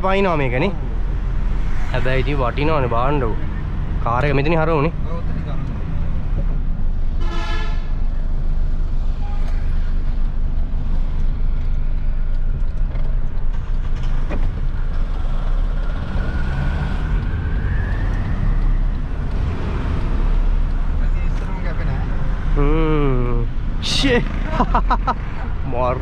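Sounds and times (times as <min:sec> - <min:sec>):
engine whine rising: 0:14.8 - 0:20.5.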